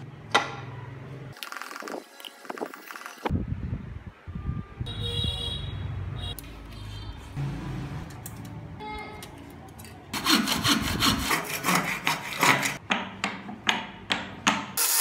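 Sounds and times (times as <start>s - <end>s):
hacksaw cutting wood: 10.2s - 12.8s.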